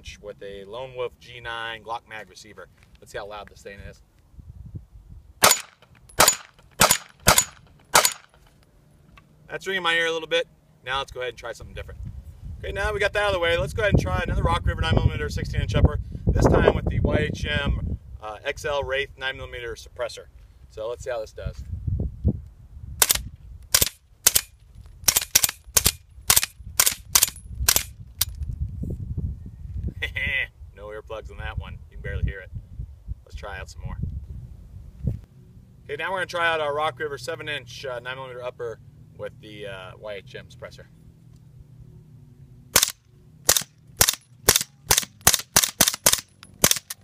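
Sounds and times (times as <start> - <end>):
suppressed rifle shots: 5.4 - 8.4, 23.0 - 24.5, 42.8 - 47.0.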